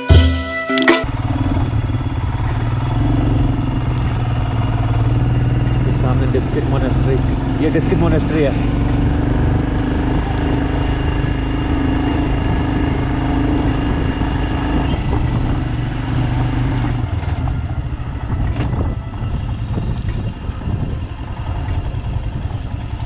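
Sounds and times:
motorcycle engine running: 0:01.0 - 0:23.0
wind noise on microphone: 0:08.6 - 0:23.0.

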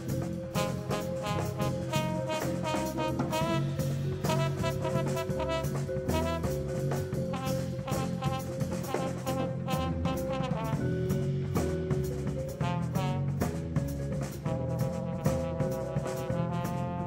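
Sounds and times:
drum kit and cymbals: 0:00.0 - 0:17.0
electric bass: 0:00.0 - 0:17.0
trombone phrases: 0:00.0 - 0:17.0.

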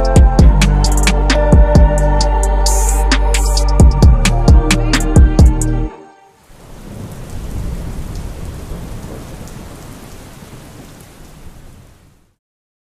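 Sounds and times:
pop song beat and bass: 0:00.0 - 0:05.9
rain: 0:06.3 - 0:12.4
rumbling thunder: 0:06.6 - 0:12.0.

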